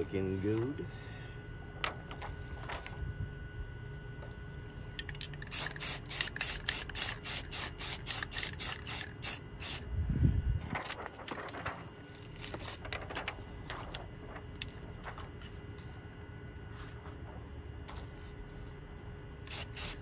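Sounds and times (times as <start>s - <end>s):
spray paint bursts: 5.2s - 9.8s, 19.4s - 20.0s.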